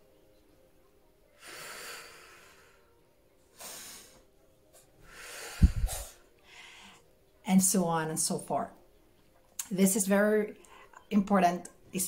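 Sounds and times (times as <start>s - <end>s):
woman breathing deeply: 1.4s - 4.2s, 5.0s - 7.1s.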